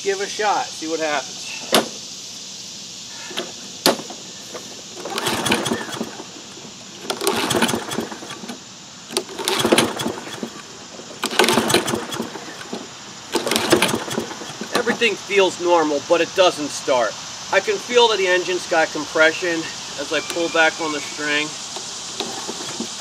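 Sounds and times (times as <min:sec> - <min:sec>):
mower engine cranking: 0:04.9 - 0:15.1, 0:20.0 - 0:23.0.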